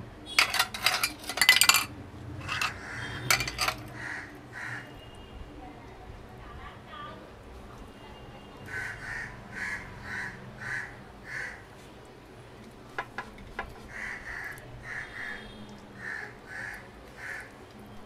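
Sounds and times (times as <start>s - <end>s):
crows cawing: 2.5s - 4.9s, 8.7s - 11.7s, 13.9s - 17.5s.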